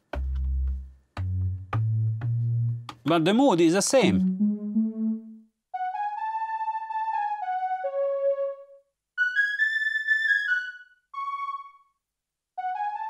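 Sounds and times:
synth melodic phrase: 0:04.0 - 0:08.7.

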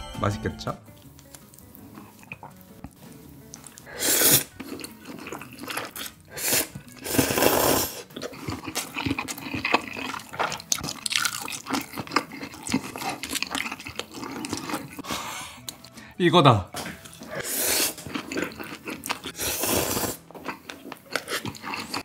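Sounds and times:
wet chewing with smacks: 0:01.1 - 0:07.0, 0:08.0 - 0:15.0, 0:16.9 - 0:19.4
slurping noodles: 0:03.6 - 0:15.2, 0:17.2 - 0:22.0.

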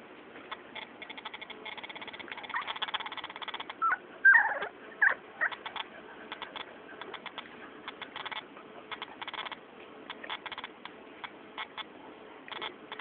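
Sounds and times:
puppies squeaking and whimpering: 0:00.8 - 0:08.4.

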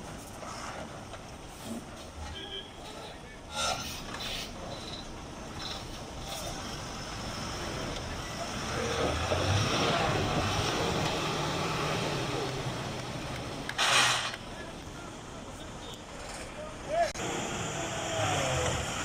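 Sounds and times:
diesel truck engine under load: 0:03.8 - 0:15.5, 0:16.1 - 0:19.0.

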